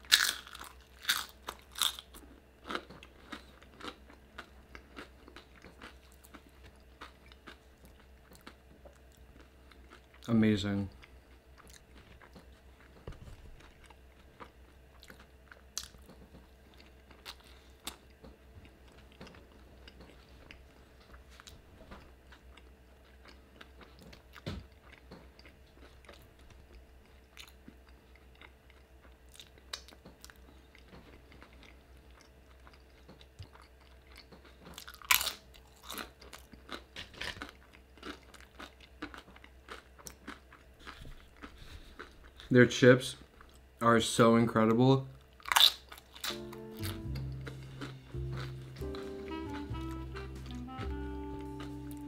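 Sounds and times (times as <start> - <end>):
crunching tortilla chips: 0.0 - 10.4, 33.5 - 42.5, 45.4 - 52.0
chewing soft food: 0.0 - 43.7, 45.2 - 52.0.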